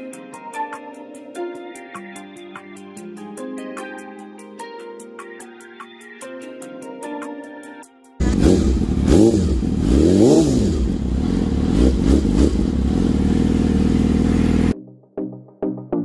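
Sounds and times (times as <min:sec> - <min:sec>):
music: 0:00.0 - 0:09.0, 0:14.3 - 0:16.0
motorcycle engine revving and idling: 0:08.2 - 0:14.8.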